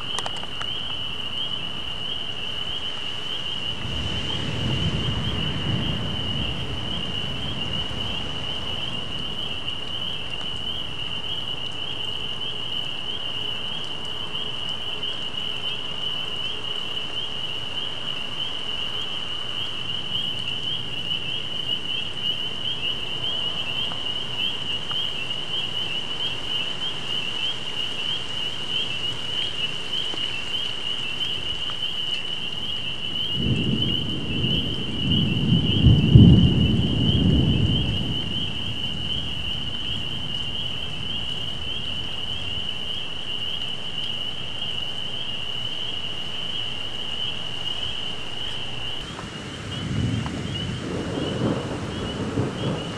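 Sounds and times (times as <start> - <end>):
thunder rumbling: 3.6 - 11.8, 32.9 - 42.9, 48.6 - 52.9.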